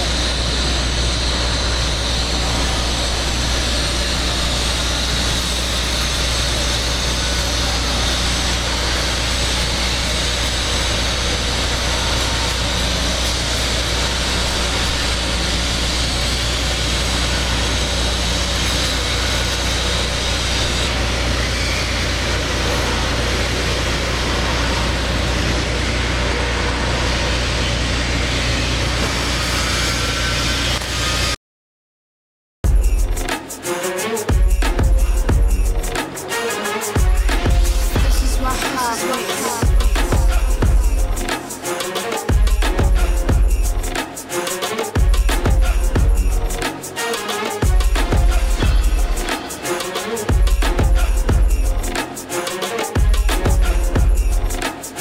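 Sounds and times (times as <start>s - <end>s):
welding arc humming and hissing: 0.0s - 31.4s, 32.7s - 55.0s.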